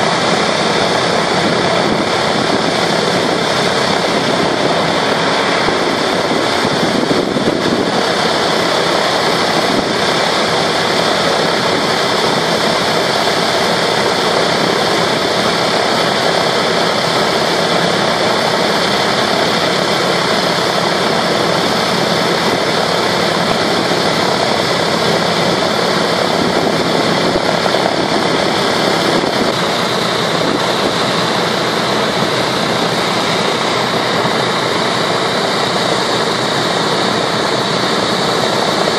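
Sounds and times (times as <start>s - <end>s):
radial aircraft engines idling: 0.0s - 38.9s.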